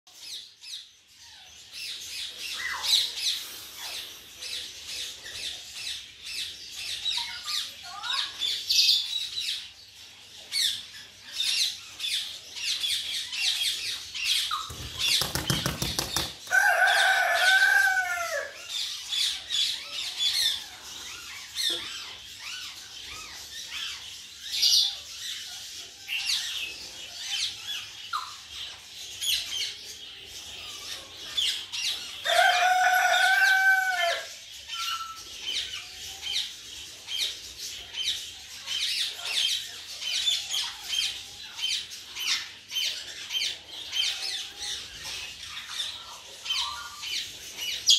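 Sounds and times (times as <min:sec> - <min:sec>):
parakeets chirping: 0:00.1 - 0:47.9
wing flapping: 0:14.7 - 0:16.5.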